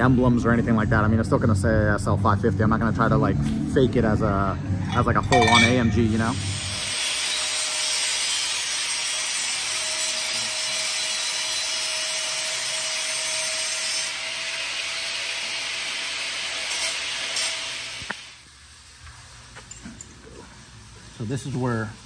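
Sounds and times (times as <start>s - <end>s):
power tool hissing and whining: 6.3s - 18.4s.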